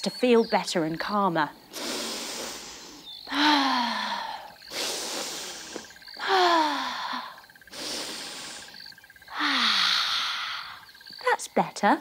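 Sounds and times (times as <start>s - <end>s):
woman breathing deeply: 1.7s - 11.0s
woman sighing: 3.3s - 7.4s, 9.3s - 10.8s.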